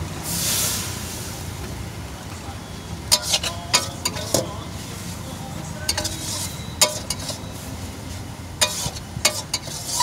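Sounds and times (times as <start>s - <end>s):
metal spatula scraping a wok: 3.1s - 4.5s, 5.8s - 10.0s.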